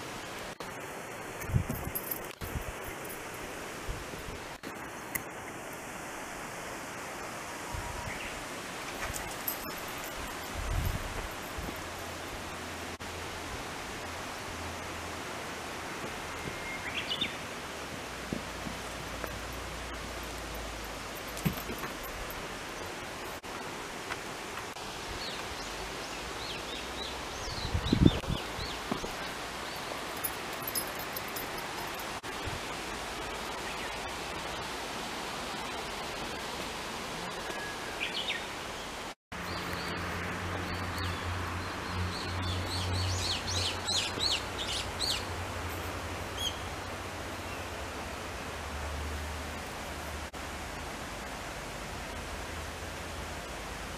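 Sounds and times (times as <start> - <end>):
outdoor background hiss: 0.0 - 53.9
birds chirping: 37.3 - 47.8.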